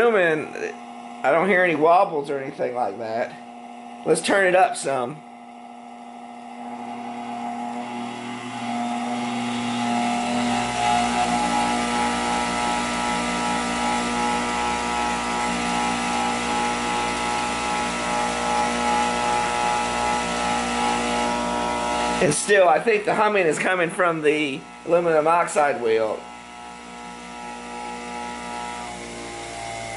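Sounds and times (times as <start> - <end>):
bench grinder humming: 0.0 - 29.9.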